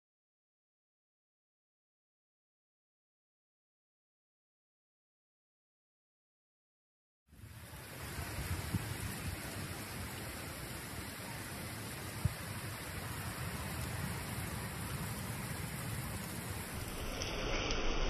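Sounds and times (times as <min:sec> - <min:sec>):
heavy rain pouring on pool: 0:07.3 - 0:18.0.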